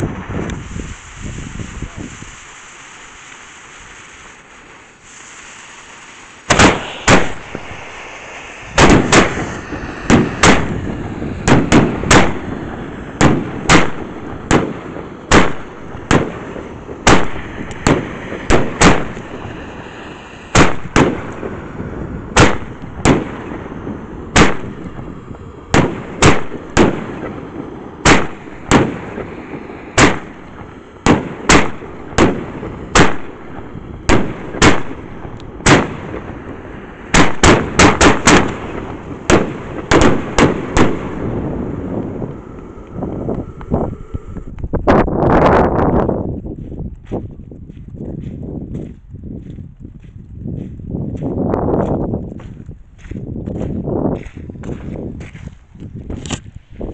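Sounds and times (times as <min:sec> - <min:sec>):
firework bangs: 0:00.0 - 0:45.4.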